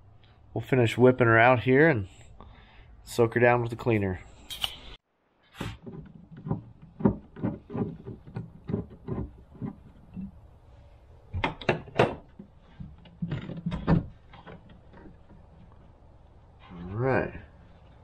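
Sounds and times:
knocks taps and rustles: 0:05.6 - 0:10.4, 0:11.3 - 0:16.0.

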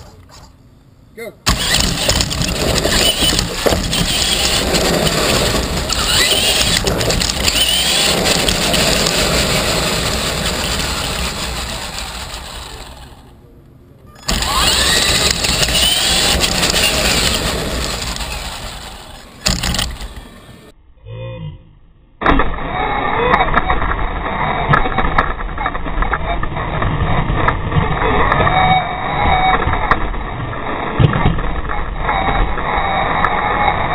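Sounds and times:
tyre and wind noise: 0:01.5 - 0:13.3, 0:14.1 - 0:20.7, 0:22.5 - 0:33.9
toy truck motor whine: 0:01.5 - 0:13.4, 0:14.2 - 0:20.7.

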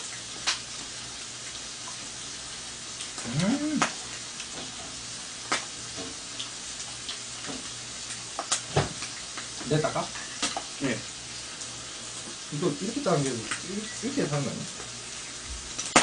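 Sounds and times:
bacon sizzling on grill pan: 0:00.0 - 0:16.0
short voice sound: 0:03.2 - 0:03.9.

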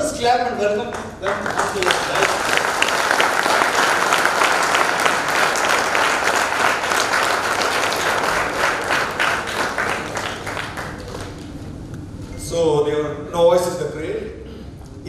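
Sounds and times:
audience applauding: 0:00.8 - 0:11.7.

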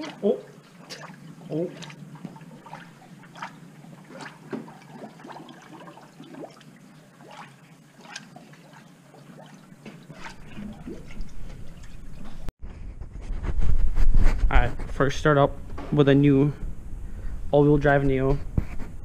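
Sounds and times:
coolant gurgling through funnel: 0:00.0 - 0:12.5.

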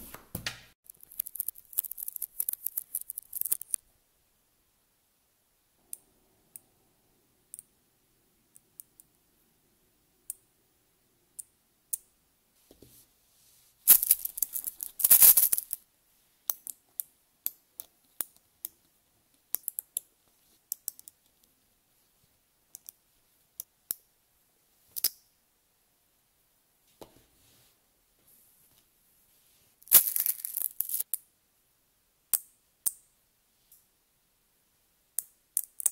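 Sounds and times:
magnetic balls clicking together: 0:00.8 - 0:03.8, 0:13.9 - 0:15.8, 0:16.5 - 0:20.1, 0:20.7 - 0:21.3, 0:35.2 - 0:35.9
many balls rattling together: 0:00.9 - 0:03.8, 0:13.9 - 0:15.8, 0:29.9 - 0:31.0.

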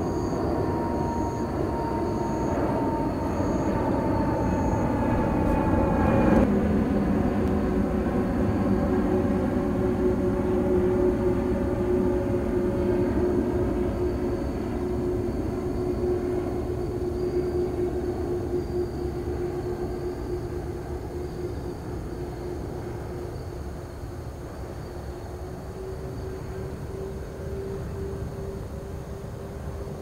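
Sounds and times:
jet engines rumbling: 0:00.0 - 0:30.0.

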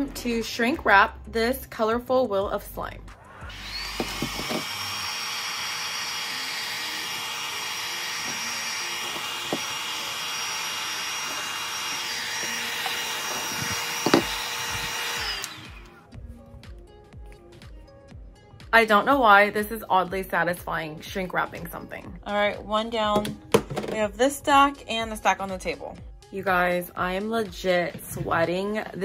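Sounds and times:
heat gun blowing with fan whine: 0:03.3 - 0:16.1.

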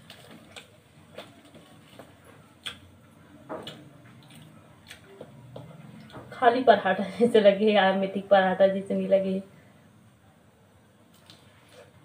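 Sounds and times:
person chewing: 0:00.0 - 0:02.9, 0:03.6 - 0:06.1, 0:11.1 - 0:12.0.

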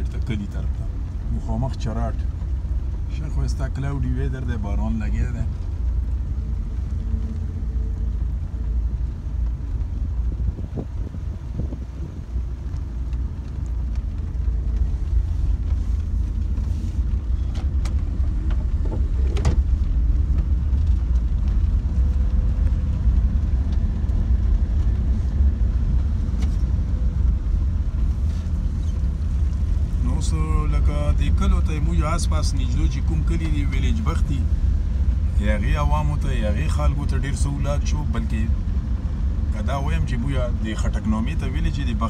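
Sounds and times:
car engine and tyres rumbling: 0:00.0 - 0:42.0.

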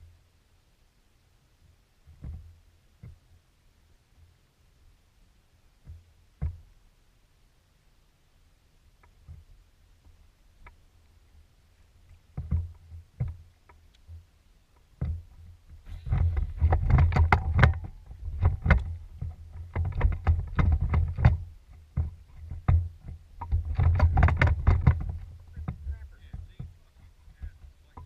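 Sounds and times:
knocks and rattles in boat: 0:02.1 - 0:03.3, 0:05.8 - 0:06.7, 0:12.0 - 0:28.0
clicks and thumps: 0:12.0 - 0:28.0.

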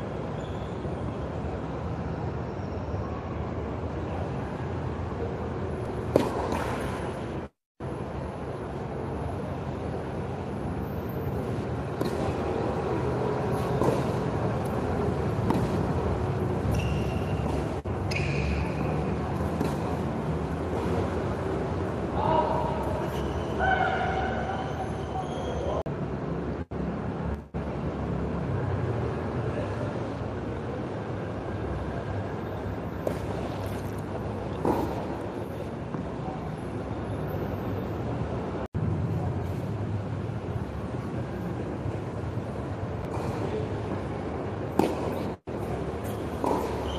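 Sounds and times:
tennis ball knocks: 0:06.1 - 0:06.9, 0:15.4 - 0:16.0, 0:44.7 - 0:45.4, 0:46.4 - 0:46.9.

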